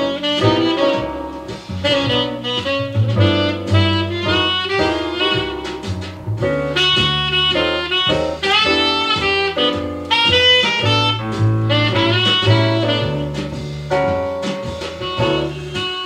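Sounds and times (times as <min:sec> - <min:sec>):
instrumental music from vinyl record: 0:00.0 - 0:16.0.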